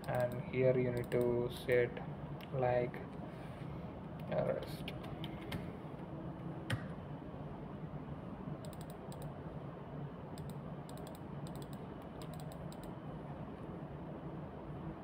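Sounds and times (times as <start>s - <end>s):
typing on computer keyboard: 8.6s - 9.3s, 10.4s - 12.9s.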